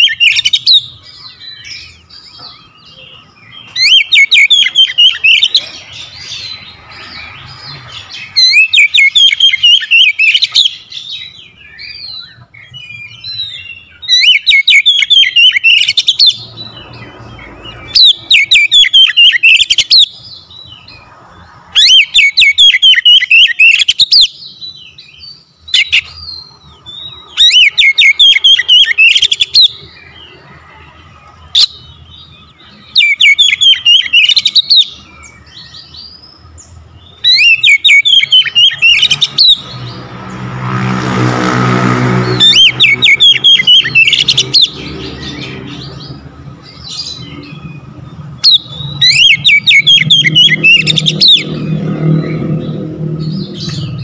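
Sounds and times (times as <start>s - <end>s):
bird singing sharp chirps: 0.0s - 54.0s.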